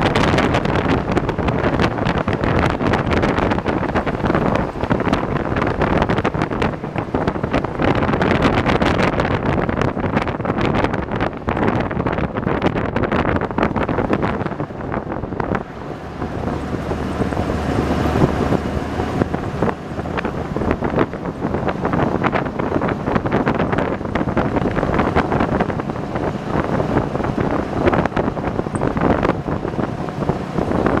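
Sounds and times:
boat vehicle engine: 0:00.0 - 0:31.0
road noise: 0:00.0 - 0:31.0
wind buffeting microphone: 0:00.0 - 0:31.0.

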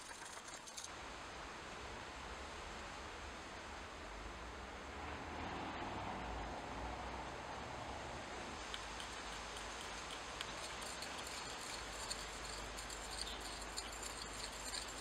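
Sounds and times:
metal rod ticking and scraping pot: 0:00.0 - 0:00.9, 0:08.7 - 0:15.0
steady hiss: 0:08.3 - 0:15.0.

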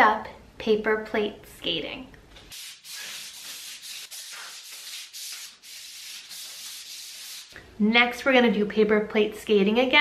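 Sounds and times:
paper plates swishing on wood floor: 0:02.4 - 0:07.6.

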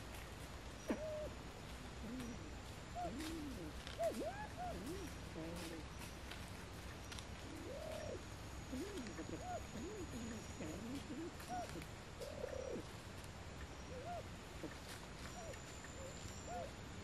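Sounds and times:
pheasants calling softly: 0:00.0 - 0:17.0.

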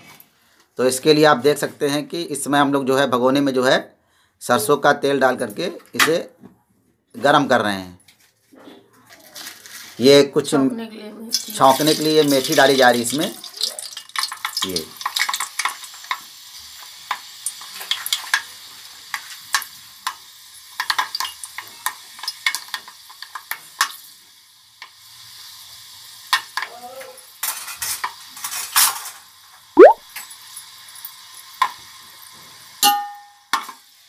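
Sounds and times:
seeds sizzling in hot oil: 0:11.3 - 0:34.0.

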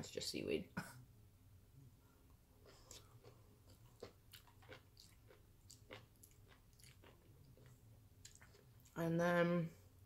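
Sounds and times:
person chewing: 0:02.6 - 0:09.0.

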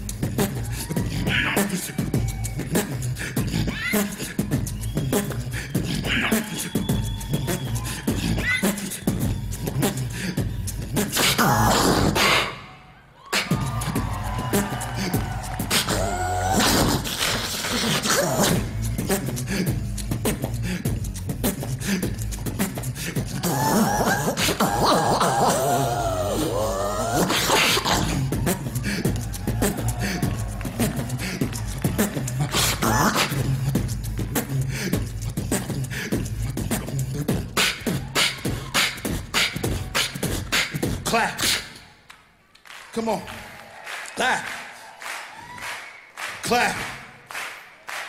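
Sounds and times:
wavering vocal melody: 0:00.0 - 0:12.6, 0:13.4 - 0:41.0
person beatboxing: 0:00.0 - 0:41.9.

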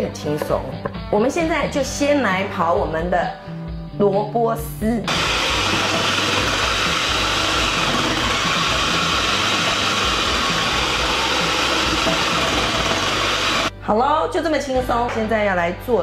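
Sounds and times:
food processor motor running: 0:05.1 - 0:13.7.

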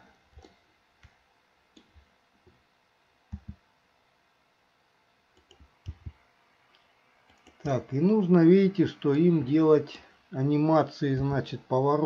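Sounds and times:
computer mouse clicks: 0:03.3 - 0:03.6, 0:05.3 - 0:07.7.

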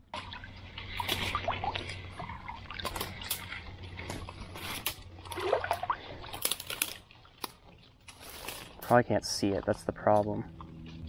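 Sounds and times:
water sloshing and trickling: 0:00.0 - 0:11.0
twigs snapping and leaves rustling: 0:01.0 - 0:02.0, 0:02.8 - 0:05.6, 0:06.3 - 0:09.0.

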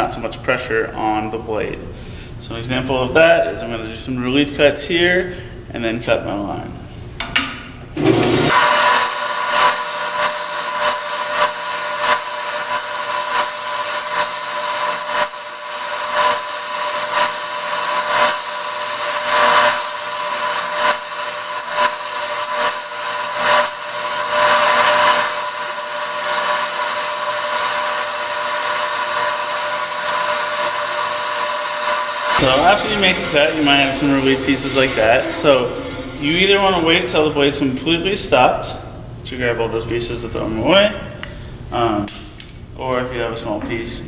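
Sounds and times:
band saw cutting wood: 0:08.0 - 0:37.3.

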